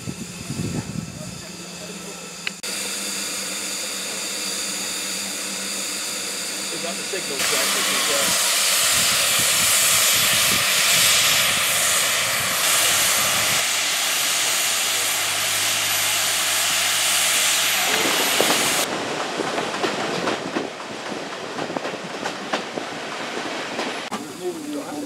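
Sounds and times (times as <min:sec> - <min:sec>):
steam locomotive hissing: 0:00.0 - 0:19.2.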